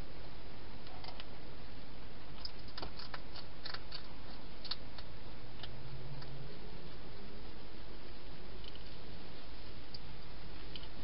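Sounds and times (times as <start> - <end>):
steady hiss: 0.0 - 11.0
hedgehog chewing food: 2.4 - 5.1
small crisp clicks and crunches: 2.4 - 6.3.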